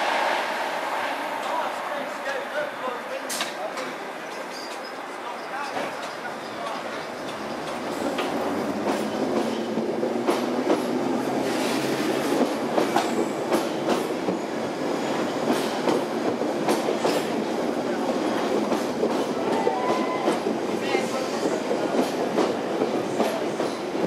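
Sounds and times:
train rumble: 0:00.0 - 0:04.5, 0:05.7 - 0:24.0.

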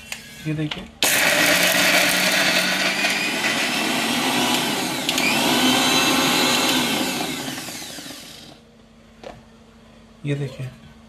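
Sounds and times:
mixer grinder motor chopping: 0:01.0 - 0:08.6.

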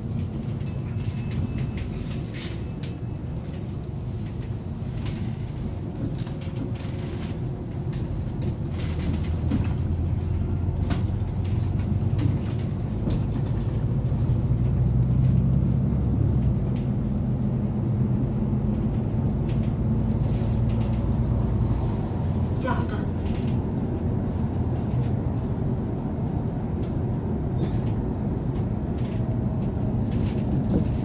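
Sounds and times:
bus engine and tyre rumble: 0:00.0 - 0:31.0
cabin rattles and clicks: 0:26.8 - 0:31.0.

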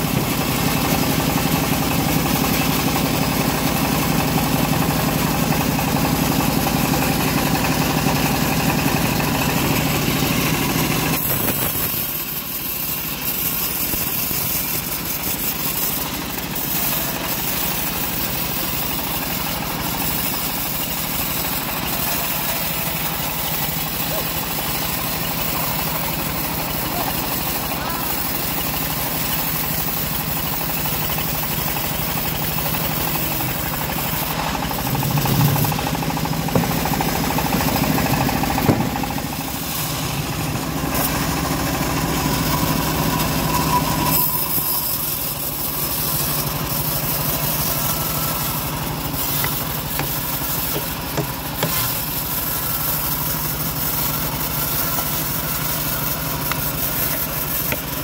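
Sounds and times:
sawmill engine droning: 0:00.0 - 0:58.0
loud knocks: 0:35.6 - 0:39.2.

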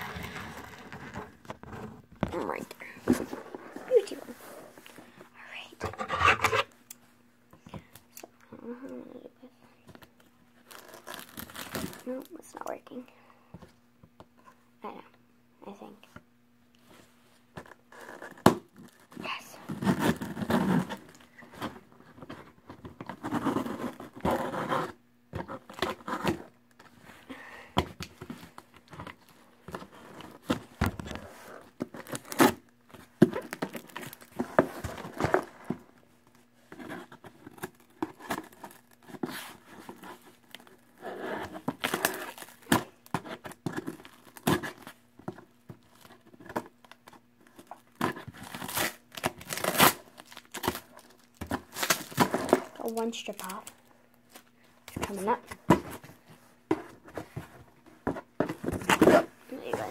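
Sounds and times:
tape tearing and crinkling: 0:10.6 - 0:12.4, 0:17.6 - 0:21.8, 0:31.2 - 0:35.6, 0:36.8 - 0:45.0, 0:45.9 - 0:55.4.

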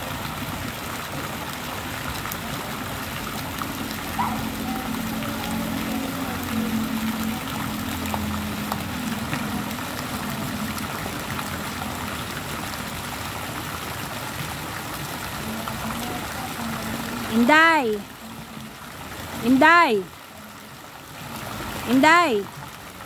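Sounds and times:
water trickling in a pool: 0:00.0 - 0:23.0.

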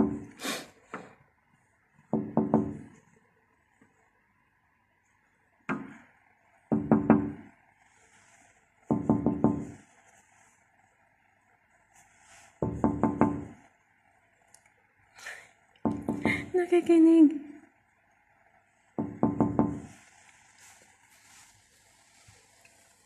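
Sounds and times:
knuckles knocking on glass window: 0:00.0 - 0:00.3, 0:02.1 - 0:02.9, 0:06.7 - 0:07.5, 0:08.8 - 0:09.8, 0:12.6 - 0:13.7, 0:15.8 - 0:16.5, 0:19.0 - 0:20.0.

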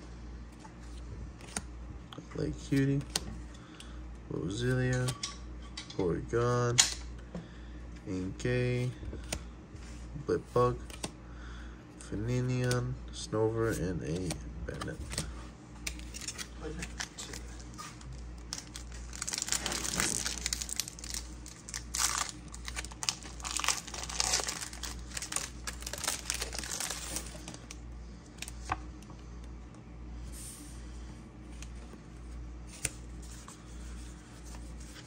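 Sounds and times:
cards rustling: 0:00.7 - 0:01.7, 0:02.4 - 0:03.3, 0:10.4 - 0:11.2, 0:13.5 - 0:28.9, 0:31.5 - 0:35.0
foil wrapper crinkling and tearing: 0:16.0 - 0:27.8.

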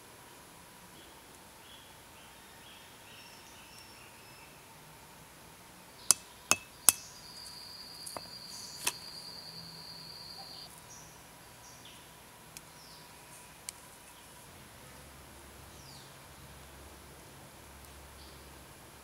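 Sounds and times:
insect high call: 0:06.0 - 0:14.3
stone knocking on stone: 0:06.1 - 0:07.0.

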